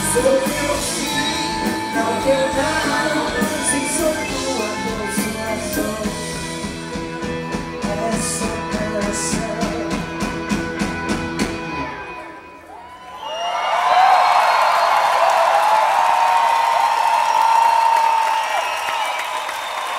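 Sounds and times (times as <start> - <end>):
electric guitar: 0.0 - 12.7
drums: 0.0 - 12.8.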